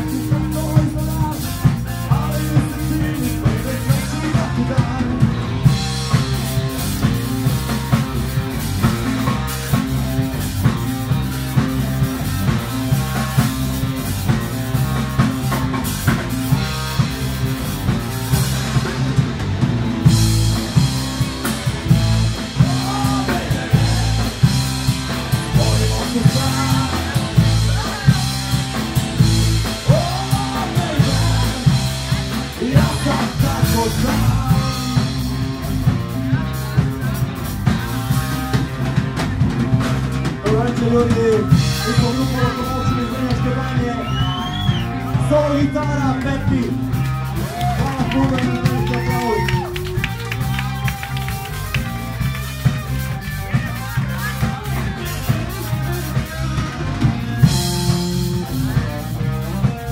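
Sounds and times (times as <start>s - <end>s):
man singing: 0.0s - 6.4s, 21.8s - 37.4s, 40.2s - 49.8s
drum kit beat: 0.0s - 59.9s
electric guitars: 0.0s - 59.9s.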